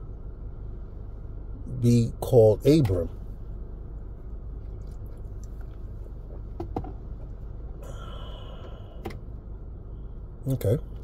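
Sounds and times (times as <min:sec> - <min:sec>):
low background hum: 0:00.0 - 0:11.0
breathy exhale with whistle: 0:07.8 - 0:09.0.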